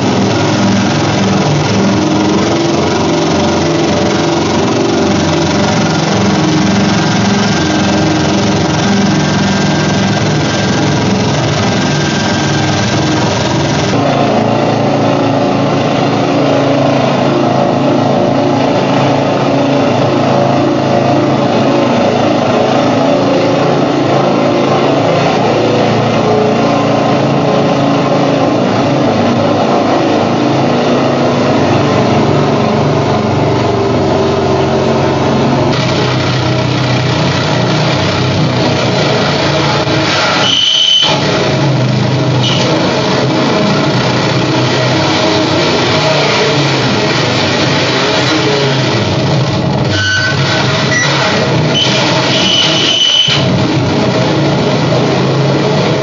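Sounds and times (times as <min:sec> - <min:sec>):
grinding mechanical drone: 0:00.0 - 0:56.0
brief high tone: 0:40.2 - 0:41.2, 0:49.9 - 0:51.2, 0:51.8 - 0:53.5.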